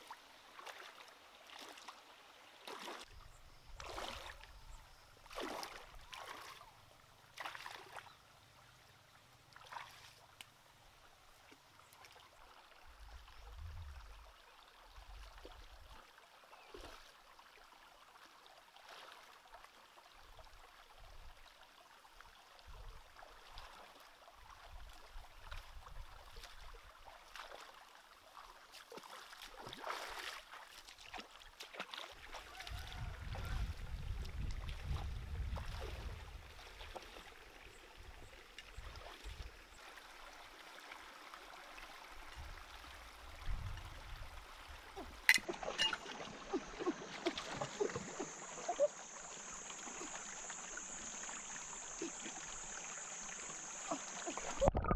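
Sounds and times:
feet splashing in water: 0.0s - 2.0s, 2.6s - 3.1s, 3.8s - 4.5s, 5.2s - 6.7s, 7.3s - 8.1s, 9.6s - 10.3s, 24.8s - 37.6s, 45.0s - 48.8s
stream trickling: 0.0s - 54.9s.

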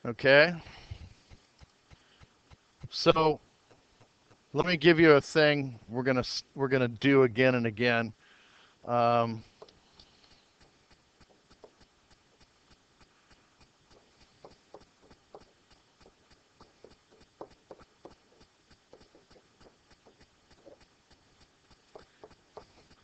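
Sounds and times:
stylus tapping on tablet: 21.9s - 23.0s.

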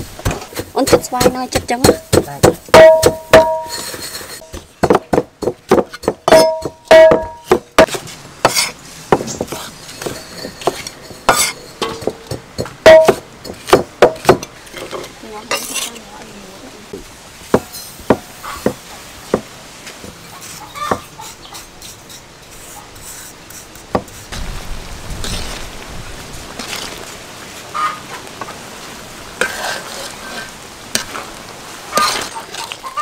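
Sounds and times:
cleaver chopping on wooden block: 4.5s - 9.7s, 10.6s - 14.5s.

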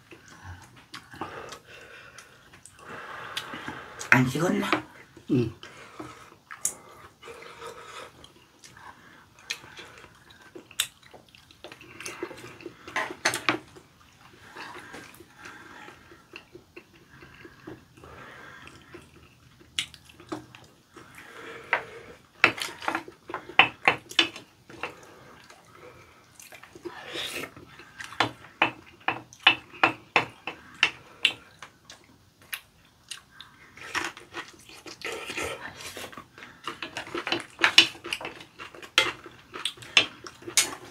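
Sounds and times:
people chewing and slurping: 0.0s - 40.9s.

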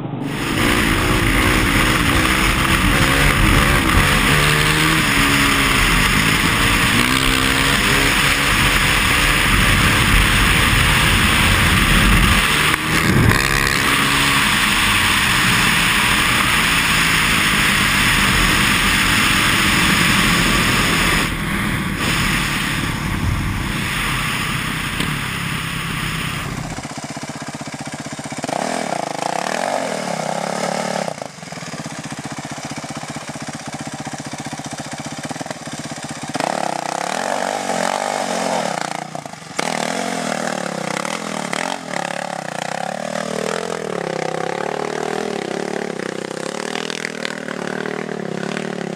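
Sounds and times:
dirt bike engine revving: 0.0s - 48.9s
wind rush on microphone: 0.1s - 26.8s.

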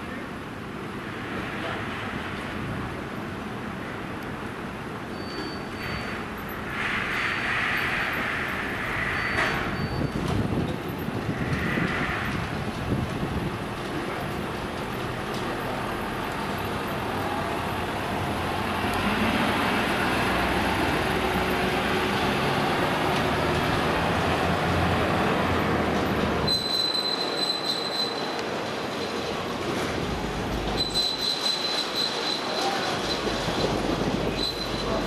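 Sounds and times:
vehicle engine and tyres rumbling: 0.8s - 35.0s
brakes squealing: 26.4s - 29.4s, 30.6s - 35.0s.

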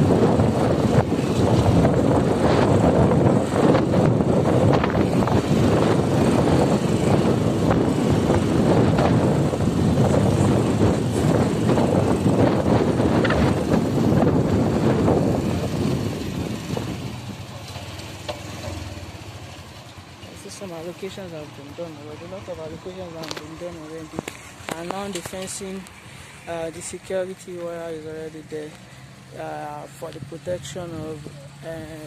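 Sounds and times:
wind rushing on microphone: 0.0s - 17.7s
vehicle engine running: 0.0s - 32.0s.

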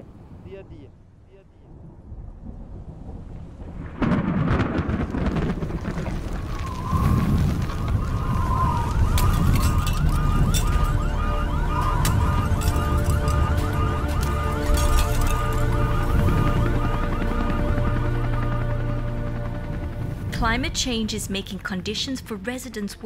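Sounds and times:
wind and heavy rain: 0.0s - 20.9s
wavering siren-like tone: 6.6s - 20.0s
steady droning tones: 7.9s - 22.6s.

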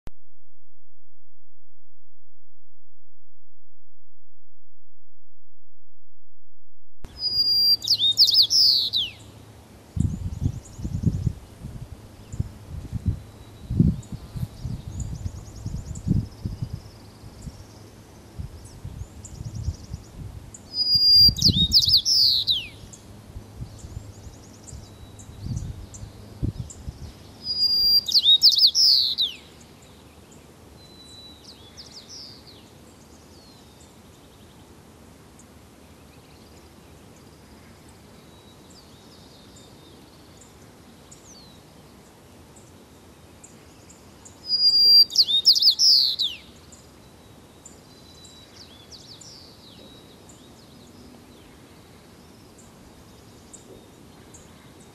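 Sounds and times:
sparrow singing: 7.1s - 9.4s, 10.0s - 11.6s, 12.2s - 34.6s, 43.4s - 51.2s.

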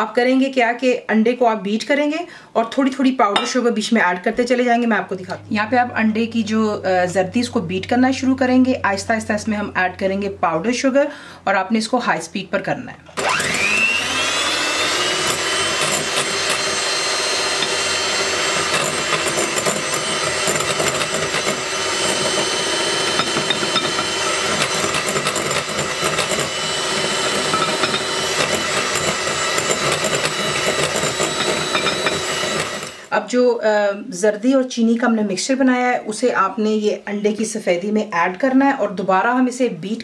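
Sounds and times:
electric hand mixer whining: 13.2s - 33.1s.

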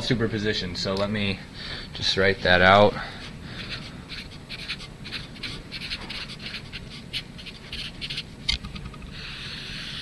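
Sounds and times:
marker writing on paper: 3.2s - 8.3s.

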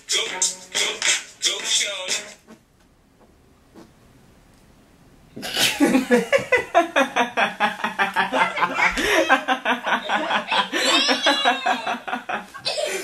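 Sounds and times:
men laughing: 5.6s - 13.0s.

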